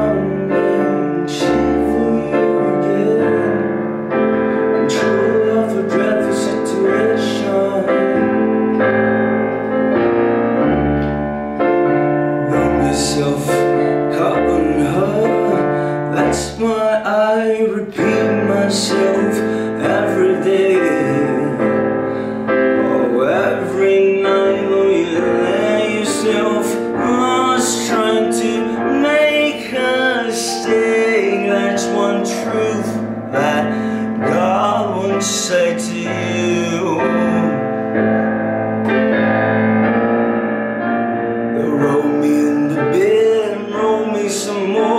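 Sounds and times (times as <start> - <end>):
piano keyboard playing chords and melody: 0.0 - 44.9.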